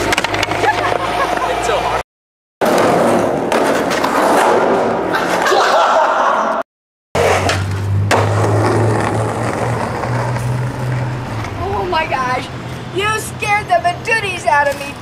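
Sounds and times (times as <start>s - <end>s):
skateboard clacks: 0.0s - 1.6s
skateboard wheels rolling: 0.0s - 2.0s, 7.2s - 12.5s
skateboard pop: 7.2s - 9.2s.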